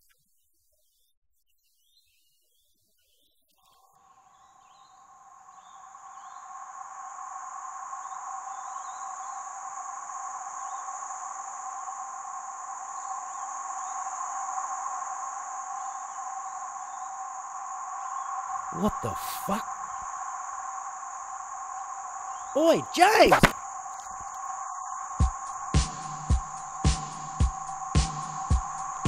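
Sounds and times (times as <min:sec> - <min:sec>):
droning insect chorus: 0:03.6 - 0:29.0.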